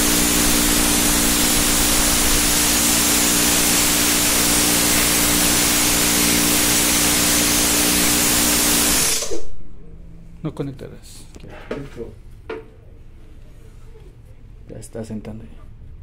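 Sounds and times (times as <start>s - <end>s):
air compressor running: 0.0s - 9.6s.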